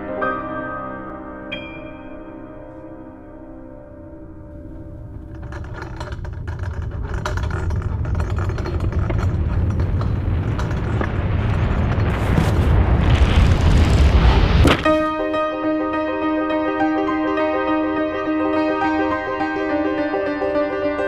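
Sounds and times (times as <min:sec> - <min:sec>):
low rumbling riser with crackle: 0:05.1 - 0:15.0.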